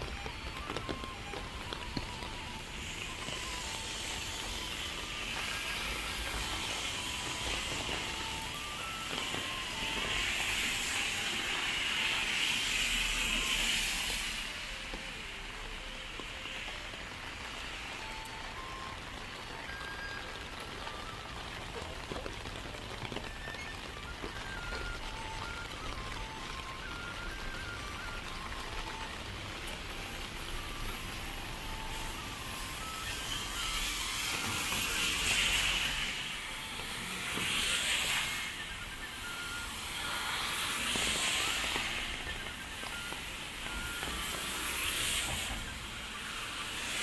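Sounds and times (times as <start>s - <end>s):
rain falling on wet pavement: 0.0s - 47.0s.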